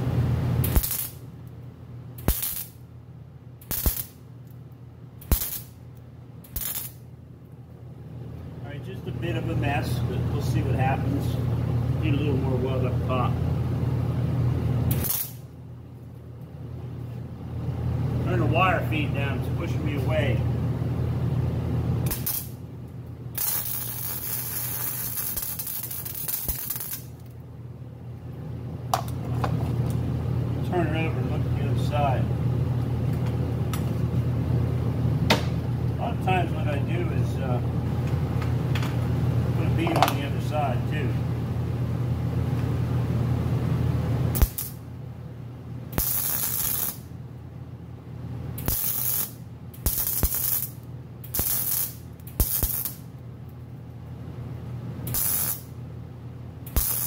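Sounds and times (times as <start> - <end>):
low steady hum: 0.0 - 57.0
welding arc pop: 0.6 - 1.2, 2.2 - 2.8, 3.6 - 4.2, 5.2 - 5.8, 6.5 - 7.0, 14.9 - 15.4, 22.0 - 22.6, 23.4 - 27.2, 35.3 - 35.6, 44.3 - 44.8, 46.0 - 47.0, 48.6 - 53.0, 55.0 - 55.7, 56.6 - 57.0
welding arc bursts: 0.6 - 1.3, 2.2 - 2.8, 3.6 - 4.2, 5.2 - 5.8, 6.5 - 7.0, 14.9 - 15.5, 22.0 - 22.6, 23.4 - 27.2, 44.3 - 44.8, 46.0 - 47.1, 48.6 - 53.1, 55.1 - 55.7, 56.7 - 57.0.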